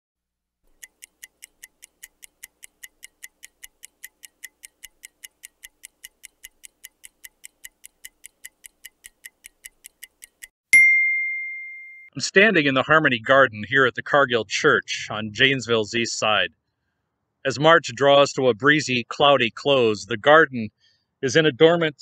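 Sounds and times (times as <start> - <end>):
dial timer ticking: 0.7 - 10.5.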